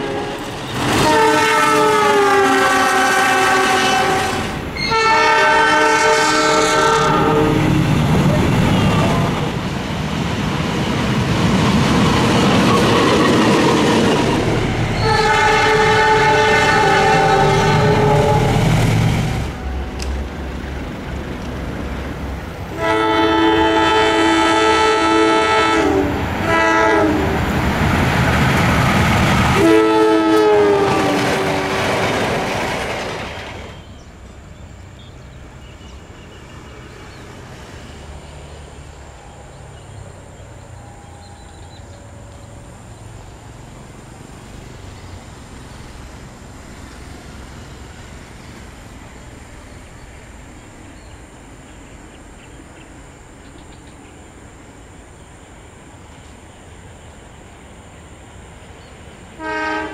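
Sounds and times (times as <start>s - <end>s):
locomotive horn blasts: 0.0s - 7.7s, 15.0s - 18.7s, 22.7s - 27.4s, 29.6s - 32.0s, 59.4s - 59.9s
train rushing past: 0.0s - 59.9s.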